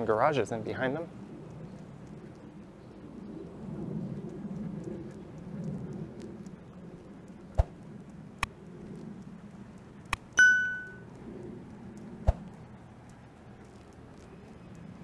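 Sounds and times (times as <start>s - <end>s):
metallic ding: 10.4s - 11.0s.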